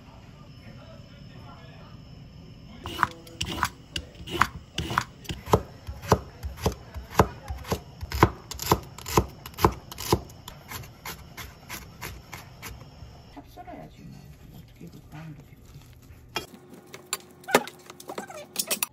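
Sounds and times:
knife chopping on wooden board: 0:02.9 - 0:12.8.

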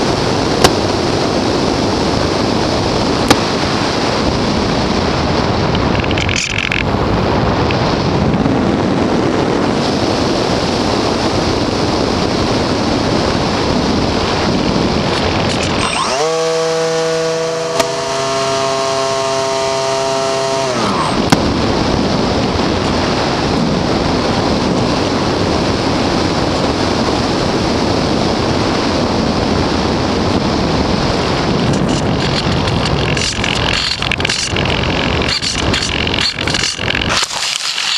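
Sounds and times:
wind rushing over microphone: 0:00.0 - 0:37.9
electric motor whining: 0:15.1 - 0:21.5, 0:31.6 - 0:37.9.

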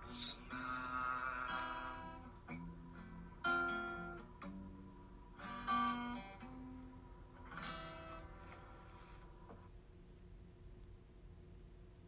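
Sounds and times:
slow guitar chords: 0:00.0 - 0:08.8.

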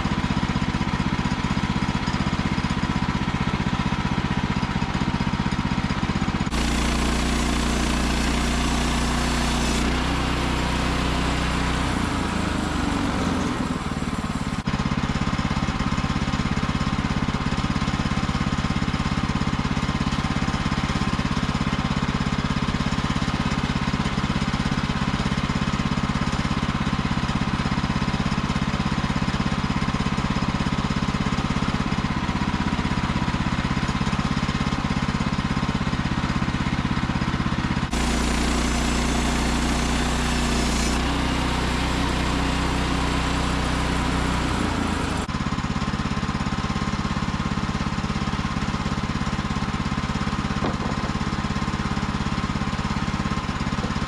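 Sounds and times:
saw blade cutting log: 0:00.0 - 0:21.5, 0:37.6 - 0:45.3, 0:50.1 - 0:54.0
sawmill gasoline engine running: 0:00.0 - 0:54.0.

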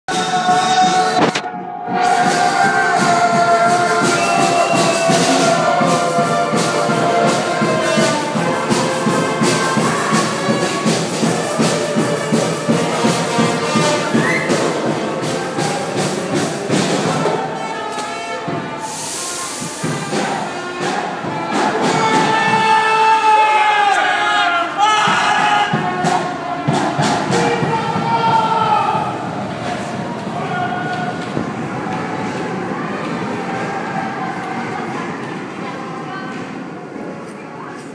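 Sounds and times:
brass band music: 0:00.1 - 0:28.0.

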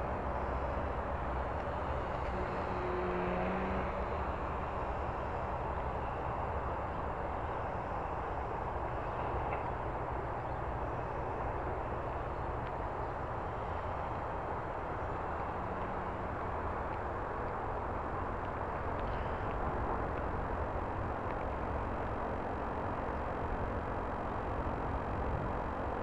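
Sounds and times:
model airplane motor drone: 0:00.0 - 0:26.0
wind noise on microphone: 0:00.0 - 0:26.0.

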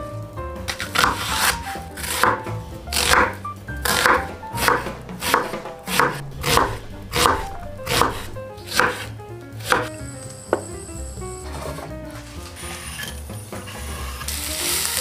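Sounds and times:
knife chopping on wooden board: 0:00.7 - 0:09.9.

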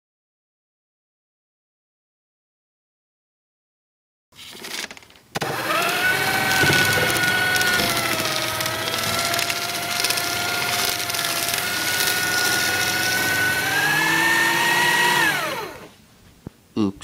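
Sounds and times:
shredder cutters crackling paper: 0:04.5 - 0:15.9
paper shredder motor whine: 0:05.4 - 0:16.0.

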